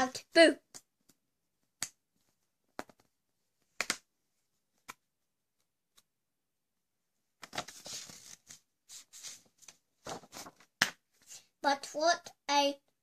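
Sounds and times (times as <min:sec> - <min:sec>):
hands tapping paper pages: 0:00.7 - 0:04.1, 0:04.7 - 0:06.1, 0:07.4 - 0:11.3
page turning: 0:07.4 - 0:11.4.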